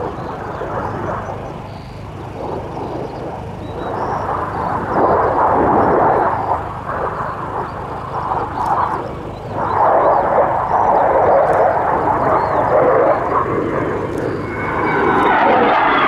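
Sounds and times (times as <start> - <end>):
jet roaring overhead: 0.0 - 16.0.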